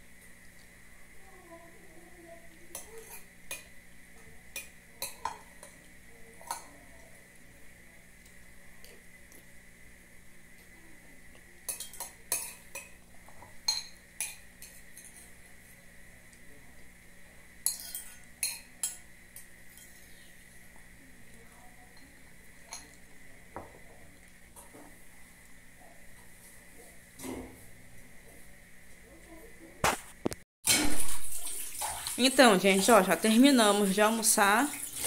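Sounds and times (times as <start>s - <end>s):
spoon clinking on glass bowl: 13.7s - 15.2s, 17.6s - 20.0s.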